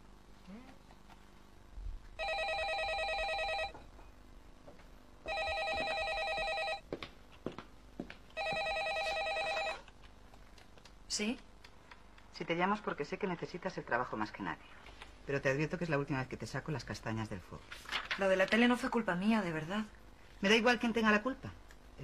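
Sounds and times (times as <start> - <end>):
landline telephone ringing: 2.2 - 3.8, 5.3 - 6.8, 8.4 - 9.8.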